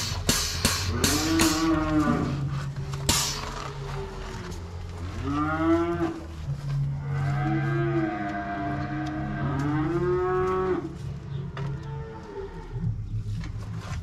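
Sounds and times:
cattle mooing: 0:00.9 - 0:02.6, 0:03.8 - 0:13.0.

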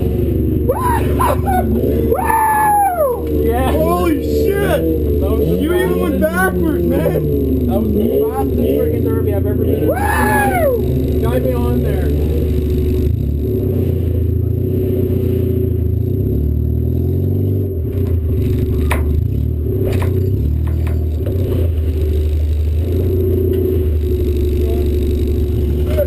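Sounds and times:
car engine droning: 0:00.0 - 0:26.0
sharp knocks and rattles: 0:18.8 - 0:21.8.

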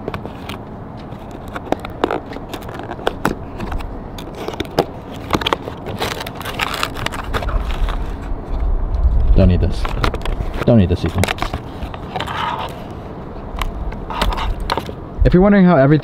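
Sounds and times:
cardboard box being opened: 0:01.2 - 0:08.4
low rumble: 0:07.4 - 0:10.6, 0:13.2 - 0:15.6.

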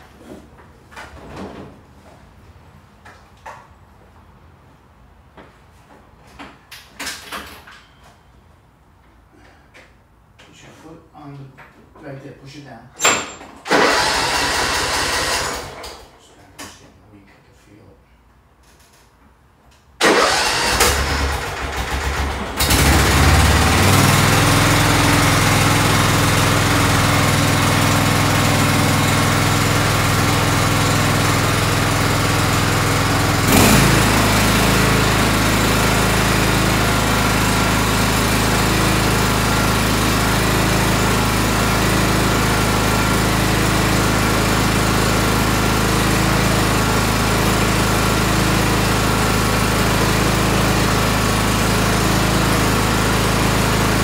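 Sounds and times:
tractor engine running: 0:20.0 - 0:54.0.

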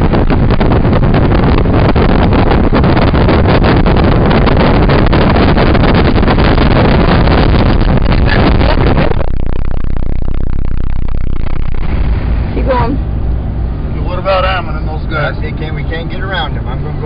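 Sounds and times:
low rumble: 0:00.0 - 0:17.0
road noise inside vehicle: 0:00.0 - 0:17.0
short crackles: 0:00.2 - 0:13.3.

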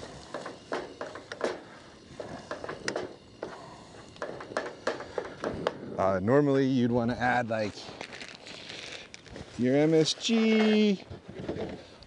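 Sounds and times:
hiss of frying: 0:00.0 - 0:05.3.

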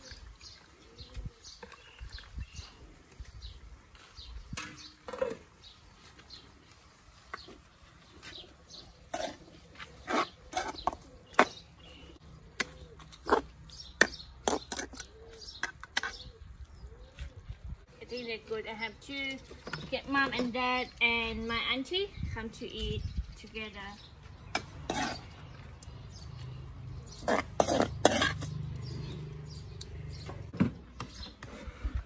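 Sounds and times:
birds chirping and cooing: 0:00.0 - 0:06.8, 0:07.4 - 0:32.0
metal ladle scraping a wok: 0:24.8 - 0:25.4, 0:27.2 - 0:28.7.

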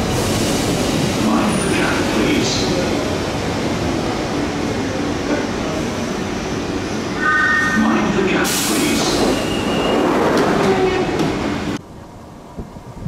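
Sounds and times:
train running noise: 0:00.0 - 0:13.0
loud hiss of air: 0:08.4 - 0:09.0.

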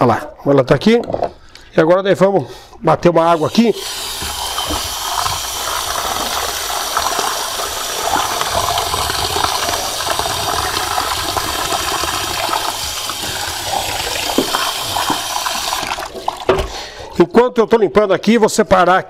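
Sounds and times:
tap water running into metal sink: 0:03.4 - 0:16.8.

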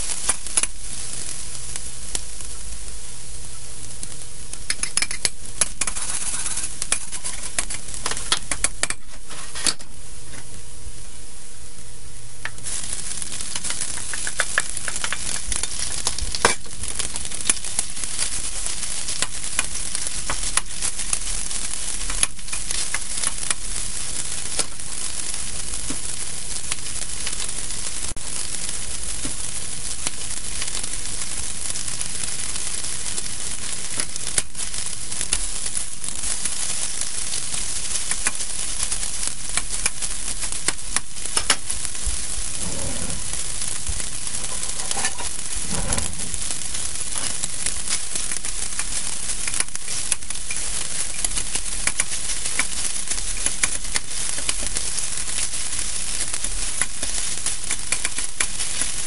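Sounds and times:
chicken sizzling in oil: 0:00.0 - 0:59.0
metal spatula stirring: 0:04.7 - 0:07.8, 0:44.3 - 0:47.4
sharp clicks: 0:48.8 - 0:52.7.

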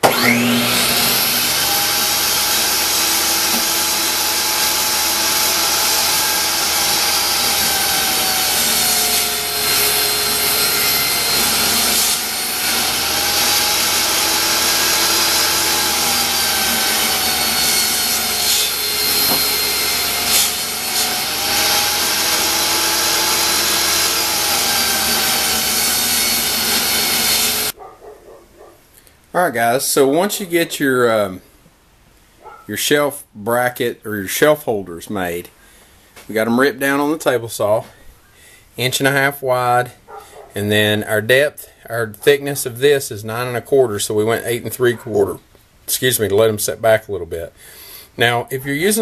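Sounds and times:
table saw whine cutting wood: 0:00.0 - 0:27.8.

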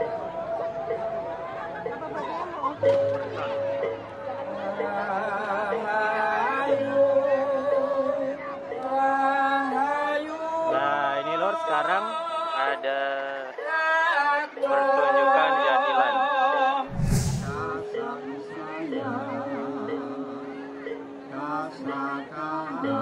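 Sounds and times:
short rumbling burst: 0:16.9 - 0:17.8.

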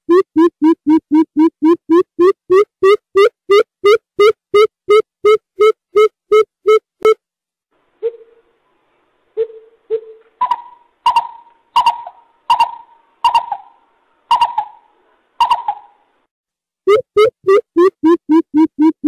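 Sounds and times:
bird hooting: 0:08.0 - 0:08.5, 0:10.4 - 0:16.0
bird sharp calling notes: 0:09.4 - 0:16.0.

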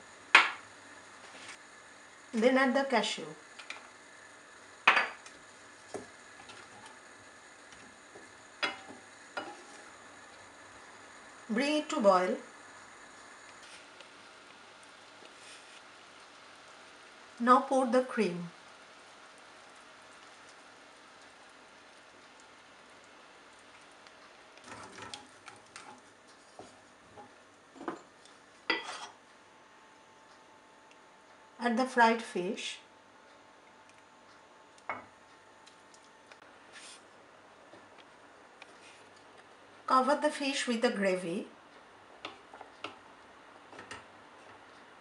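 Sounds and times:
gravy simmering and hissing: 0:00.0 - 0:30.7, 0:33.4 - 0:45.0
faint sizzle: 0:00.0 - 0:45.0
wooden spoon stirring in a pan: 0:05.2 - 0:10.9, 0:12.8 - 0:17.0, 0:18.9 - 0:29.2.

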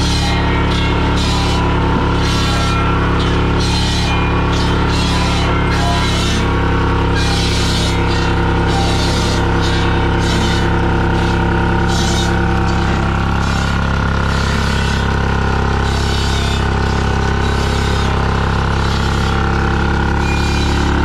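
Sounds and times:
diesel engine running steadily: 0:00.0 - 0:21.0.

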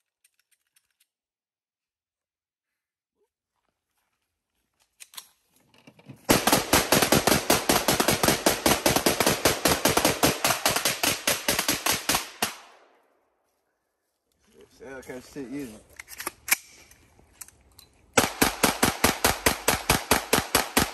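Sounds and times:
rapid gunshots: 0:06.3 - 0:12.7, 0:18.2 - 0:20.9.

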